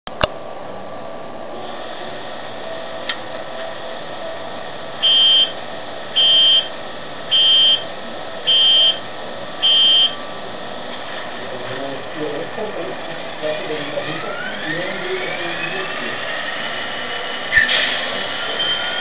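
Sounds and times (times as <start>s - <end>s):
electronic buzzer beeps: 5.0s - 9.0s, 9.6s - 10.2s.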